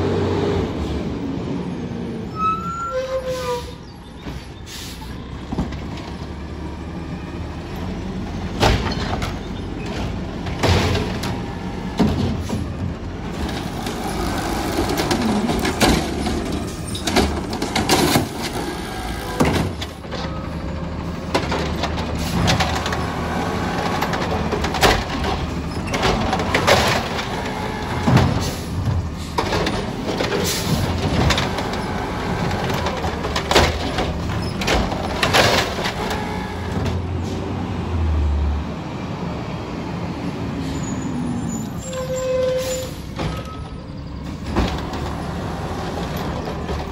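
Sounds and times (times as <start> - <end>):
garbage truck engine running: 3.8 - 41.6, 42.6 - 46.9
mechanical arm lifting carts: 7.8 - 37.2.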